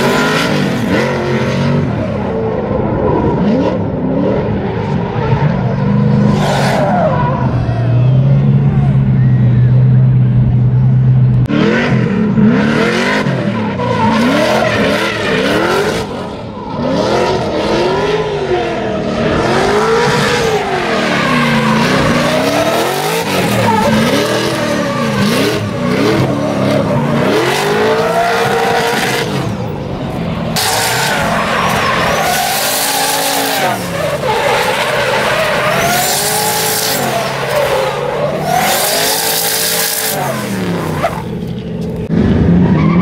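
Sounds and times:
car engine revving: 0.0 - 43.0
tyres screeching: 19.8 - 42.1.

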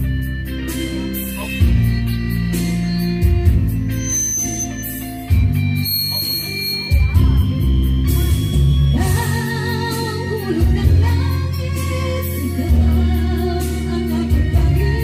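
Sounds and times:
long steady bass notes: 0.0 - 15.0
singing voice with vibrato: 5.8 - 15.0.

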